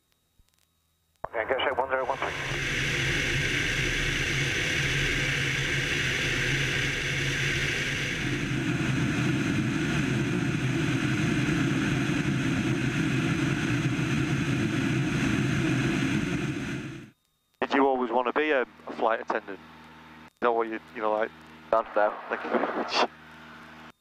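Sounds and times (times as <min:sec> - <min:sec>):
propeller plane engine droning: 0:01.3 - 0:17.1.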